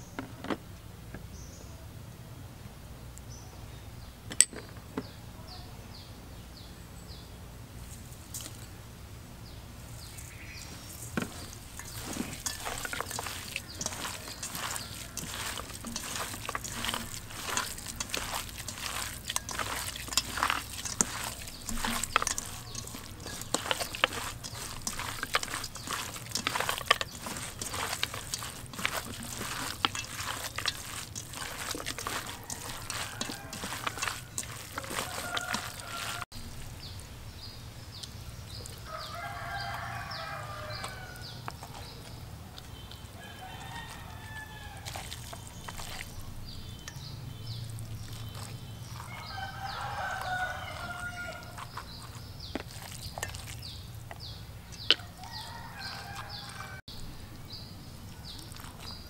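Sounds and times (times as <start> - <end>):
hand kneading wet mixture: 7.8 - 59.0
rooster crowing: 31.9 - 36.3, 38.9 - 41.4, 43.2 - 45.2, 49.0 - 51.7, 55.1 - 56.8.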